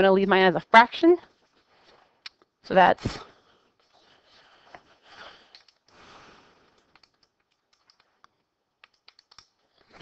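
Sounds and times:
calculator keys clicking: 6.8 - 8.2, 8.8 - 9.5.

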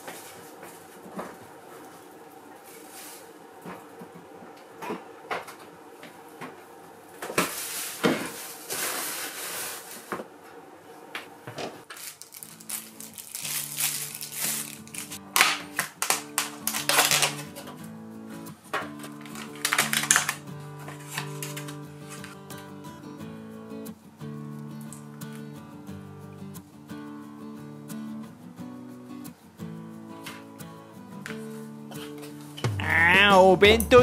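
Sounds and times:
rustling and clattering in kitchen: 0.0 - 22.4, 31.2 - 32.6
plastic packaging crackling: 11.8 - 17.6, 18.8 - 22.4
light background music: 27.0 - 34.0.

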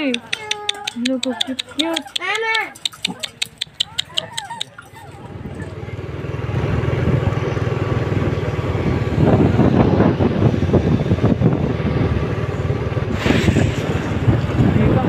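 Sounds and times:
motorcycle engine running: 1.1 - 15.0
wind buffeting microphone: 4.0 - 15.0.

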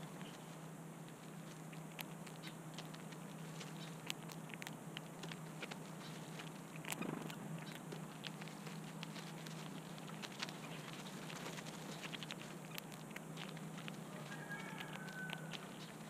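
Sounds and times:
birds pecking seed hulls: 0.0 - 16.0
rustle of seed hulls: 5.2 - 16.0.

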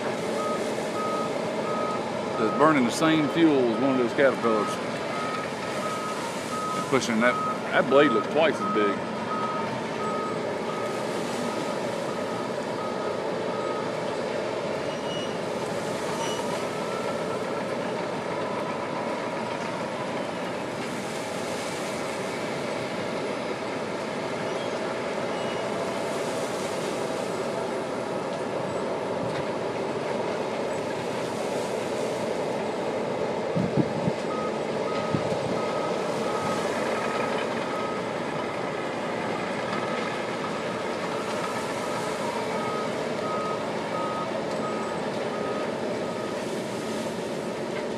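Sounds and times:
bulldozer diesel engine running: 0.0 - 47.9
reverse alarm beeping: 0.4 - 14.0, 16.1 - 17.6, 34.3 - 38.2, 41.1 - 46.4.

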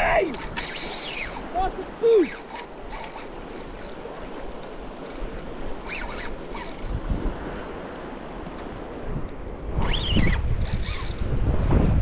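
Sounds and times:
wind and water: 0.0 - 12.0
fishing reel gears ticking: 0.4 - 7.0, 10.6 - 11.3.

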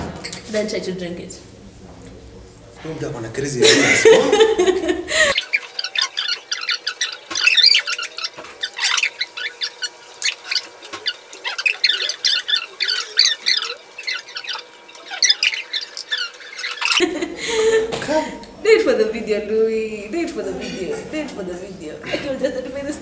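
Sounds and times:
people talking: 0.0 - 4.9, 17.8 - 23.0
sped-up squeaky chatter: 5.2 - 17.2.

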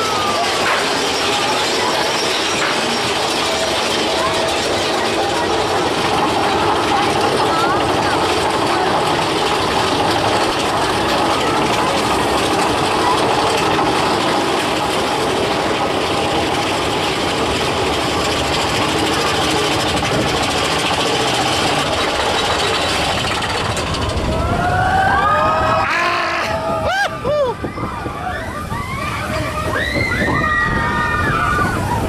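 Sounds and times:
roller coaster rumble and rattle: 0.0 - 32.0
riders screaming: 24.1 - 32.0.

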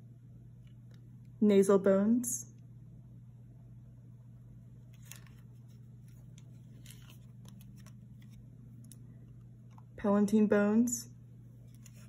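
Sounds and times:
steady low hum: 0.0 - 12.0
soft handling clicks and rustles: 4.9 - 10.0, 11.5 - 12.0.

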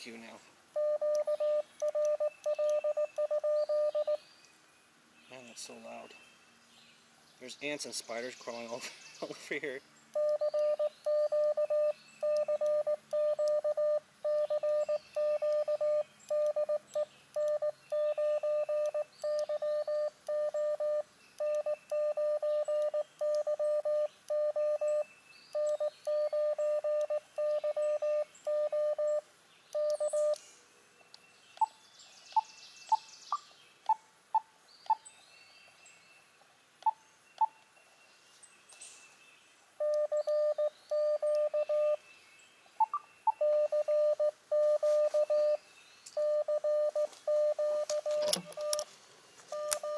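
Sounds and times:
morse code beeps: 0.8 - 4.2, 10.2 - 29.2, 29.8 - 30.4, 39.8 - 42.0, 43.3 - 45.6, 46.2 - 48.9, 49.5 - 49.9.

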